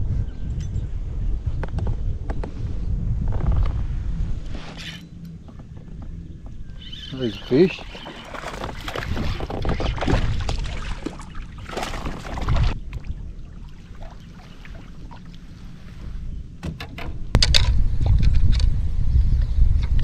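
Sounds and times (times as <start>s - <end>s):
kayak handling noise: 4.7s - 13.0s
water splashing: 7.2s - 15.6s.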